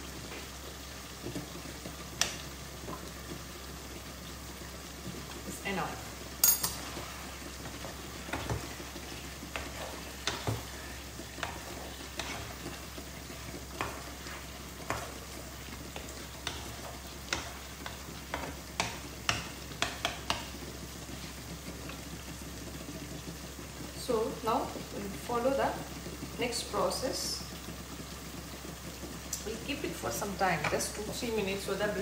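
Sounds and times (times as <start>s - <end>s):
food sizzling: 0.0s - 32.0s
spatula scraping pan: 6.7s - 20.4s.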